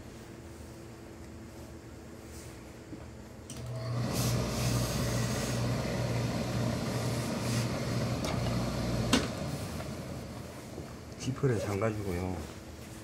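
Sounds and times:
steam iron hissing: 3.7s - 11.1s.

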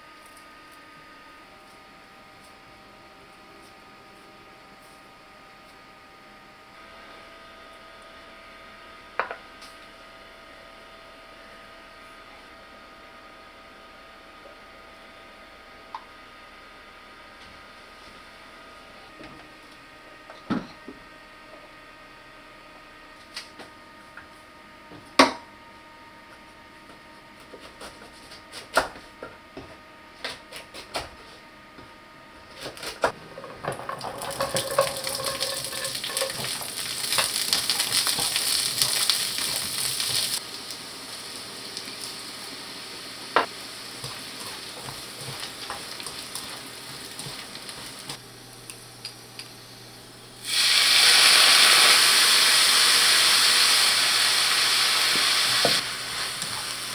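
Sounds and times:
chopsticks stirring: 33.3s - 40.4s, 43.9s - 48.2s
kitchen utensils clicking: 33.4s - 36.5s
vegetables sizzling in a pan: 33.4s - 48.2s, 50.4s - 56.9s
sauce sizzling in hot pan: 34.0s - 48.2s, 50.4s - 56.9s.

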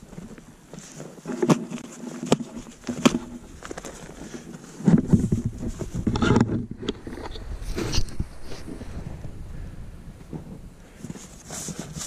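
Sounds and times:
rustling of handling: 0.0s - 9.0s, 10.2s - 12.0s
wind on microphone: 4.9s - 12.0s.

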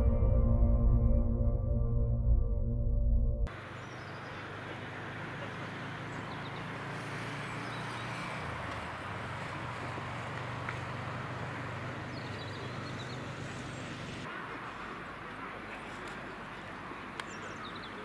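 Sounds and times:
low hum: 0.0s - 3.5s.

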